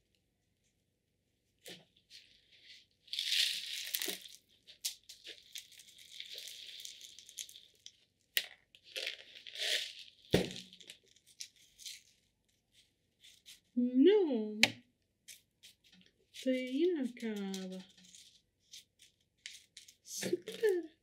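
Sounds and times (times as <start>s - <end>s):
granules poured into a pot: 3.1s - 4.5s, 5.2s - 8.0s, 8.8s - 11.0s.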